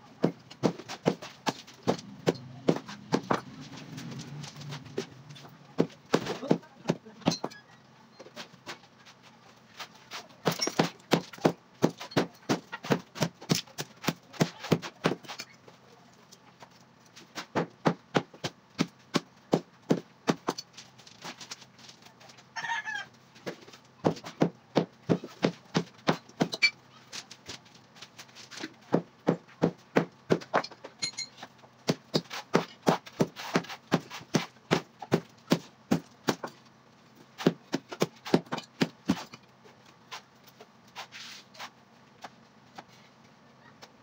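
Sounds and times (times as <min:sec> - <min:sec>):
knocks on concrete blocks: 0:00.2 - 0:03.5, 0:05.8 - 0:07.6, 0:10.4 - 0:15.4, 0:17.4 - 0:20.6, 0:23.4 - 0:26.7, 0:28.8 - 0:31.2, 0:31.8 - 0:36.6, 0:37.4 - 0:39.4.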